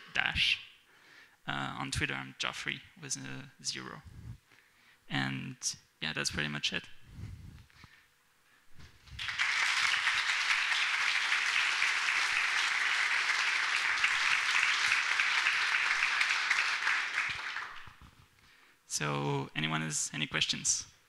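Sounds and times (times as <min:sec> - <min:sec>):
audience applauding: 0:09.2 - 0:18.0.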